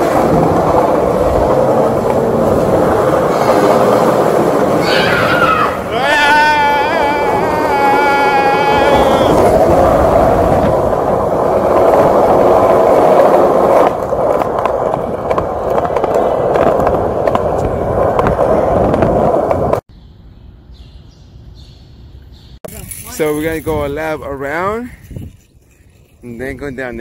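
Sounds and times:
wheels rolling over concrete: 0.0s - 19.8s.

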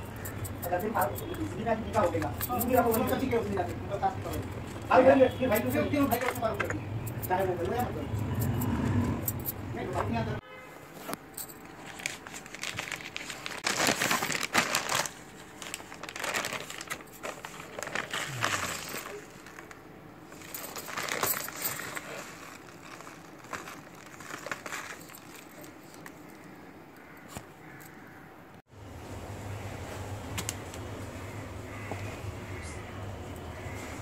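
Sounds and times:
plastic bag crinkling: 11.6s - 26.3s.

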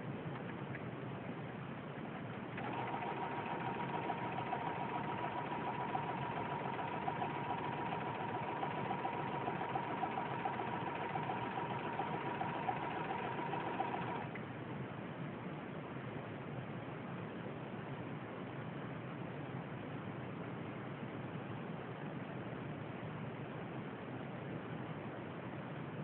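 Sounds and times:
sewing machine stitching: 2.3s - 14.4s.

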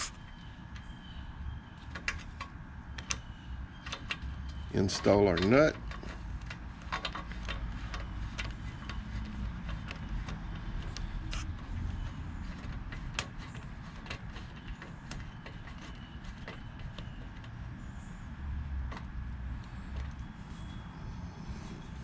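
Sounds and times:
metallic clicks of nut threading: 1.8s - 17.7s.

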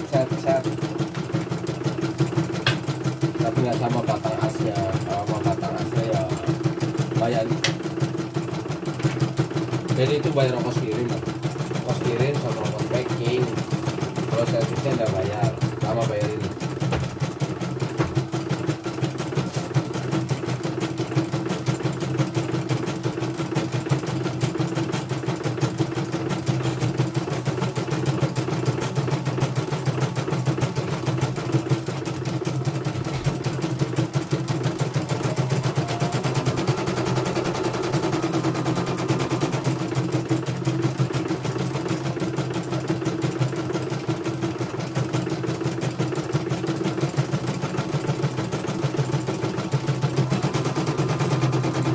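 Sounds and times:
embroidery machine stitching: 0.0s - 51.9s.

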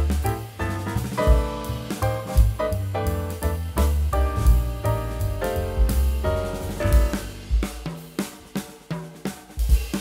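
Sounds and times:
steady bass: 0.0s - 7.8s
jazz piano chords: 0.0s - 10.0s.

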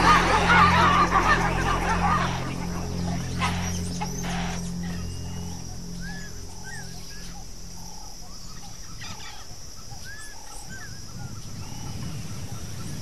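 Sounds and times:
low rumble: 0.0s - 10.0s
steady high whine: 0.0s - 11.4s
birds chirping: 0.0s - 13.0s.

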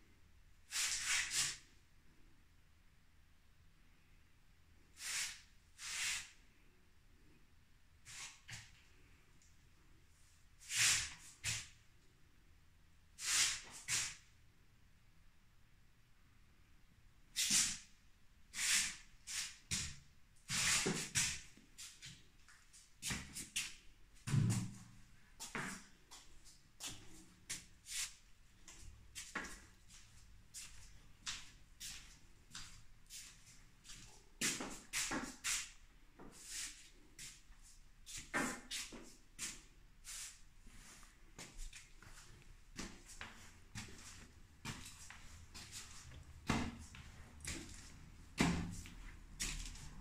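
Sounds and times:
footsteps scuffing on tiled floor: 25.4s - 50.0s.

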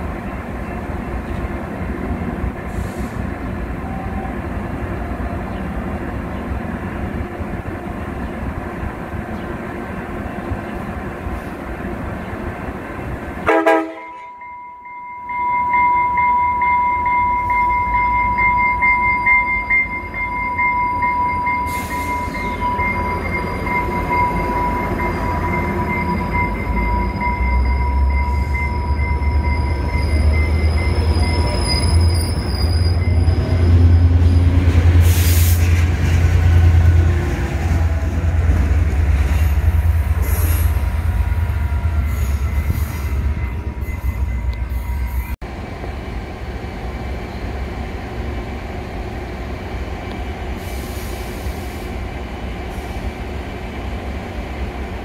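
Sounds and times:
diesel locomotive rumble: 0.0s - 14.2s, 15.4s - 55.0s
faint high wheel squeal: 21.3s - 34.6s, 42.0s - 45.4s.

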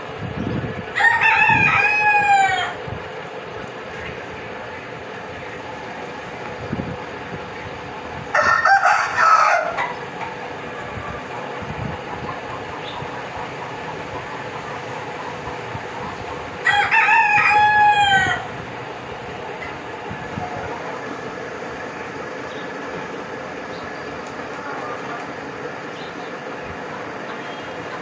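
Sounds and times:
rooster crowing: 0.9s - 2.8s, 8.3s - 10.0s, 16.6s - 18.6s.

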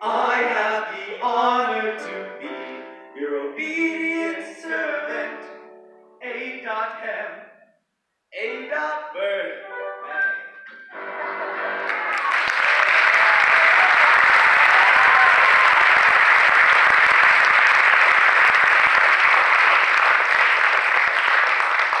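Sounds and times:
audience applauding: 11.0s - 22.0s.

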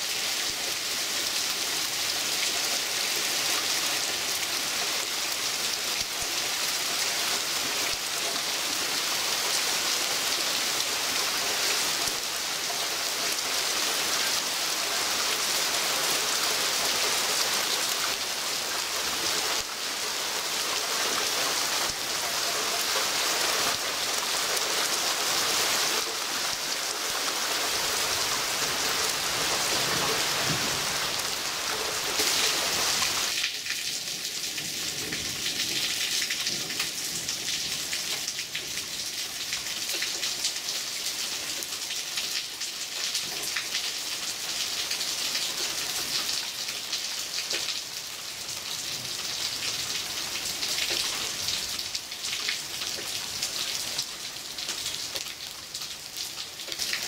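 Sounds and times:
heavy rain pouring: 0.0s - 57.0s.

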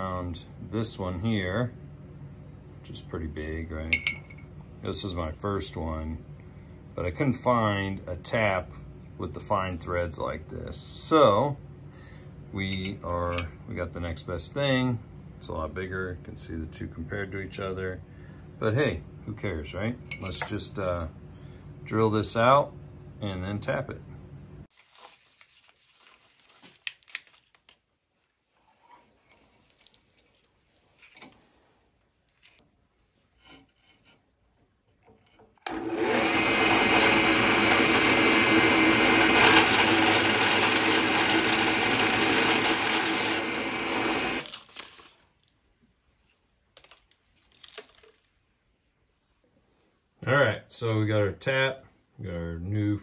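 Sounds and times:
paper rustling: 24.7s - 27.7s, 44.4s - 45.5s, 46.8s - 48.3s
drill press cutting metal: 35.6s - 44.5s.

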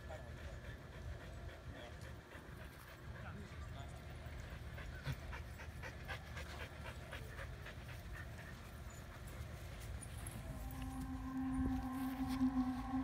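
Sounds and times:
dog panting: 0.0s - 11.1s.

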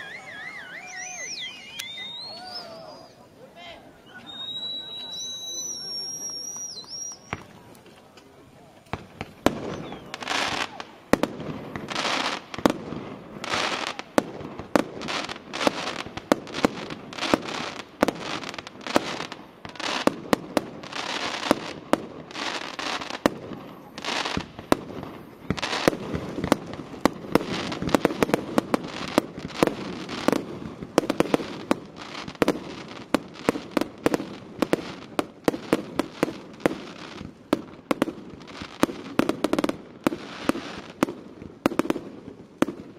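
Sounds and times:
firework bangs: 0.0s - 3.1s, 4.2s - 7.7s, 8.8s - 42.9s
firework hissing: 0.0s - 3.1s.

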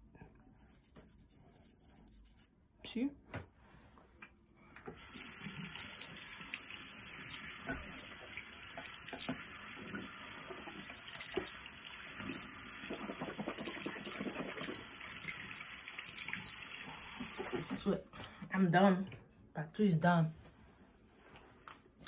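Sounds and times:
tap running into a sink: 7.3s - 11.6s, 17.1s - 17.8s.

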